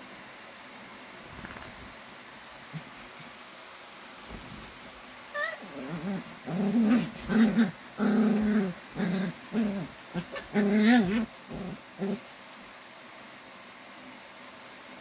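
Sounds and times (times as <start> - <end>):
dog whining: 5.4 - 12.2
small dogs growling: 5.4 - 12.3.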